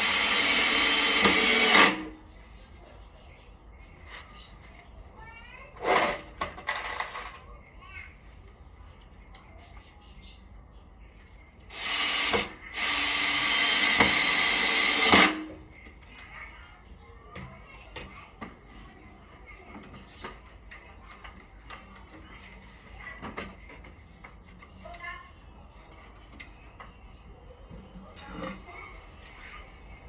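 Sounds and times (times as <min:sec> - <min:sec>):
power tool running: 0:00.0 - 0:02.2, 0:11.7 - 0:15.5.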